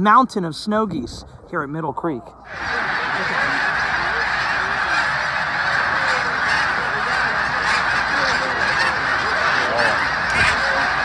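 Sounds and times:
flock of geese honking: 0:02.5 - 0:11.0.

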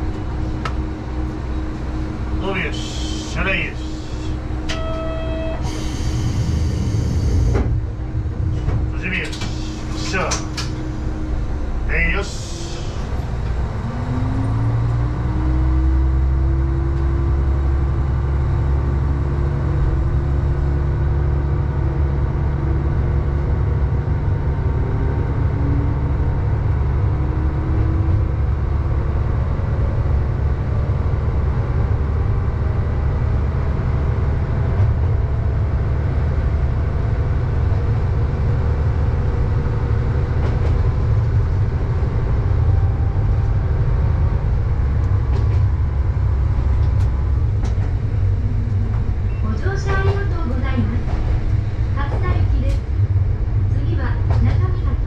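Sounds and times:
railcar engine drone: 0:00.0 - 0:55.0
high whine: 0:00.1 - 0:07.7.

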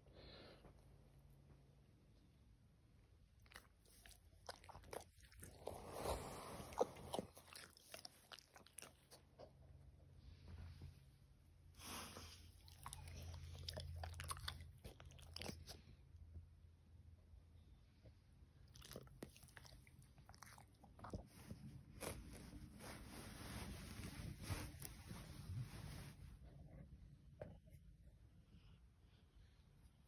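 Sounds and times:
crunchy chewing: 0:03.4 - 0:09.5, 0:12.6 - 0:15.8, 0:18.7 - 0:22.6.

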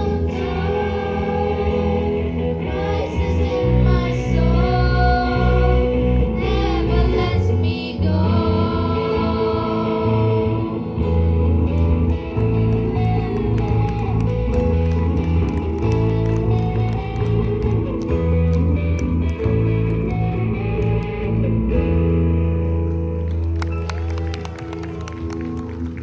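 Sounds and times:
children singing: 0:00.0 - 0:10.9
electric bass guitar: 0:00.0 - 0:26.0
keyboard: 0:00.0 - 0:26.0.

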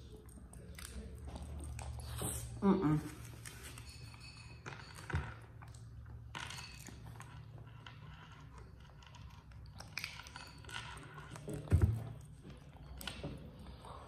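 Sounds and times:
wet chewing: 0:00.0 - 0:02.6.

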